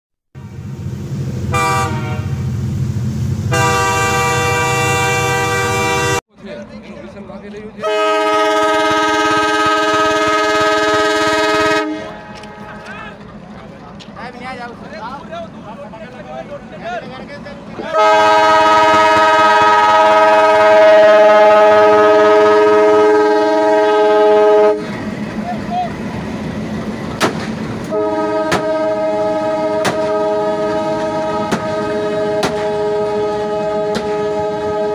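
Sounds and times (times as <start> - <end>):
locomotive engine rumble: 0.4 - 34.9
locomotive horn: 1.5 - 2.4, 3.5 - 6.2, 7.8 - 13.0, 17.8 - 25.0, 27.9 - 34.9.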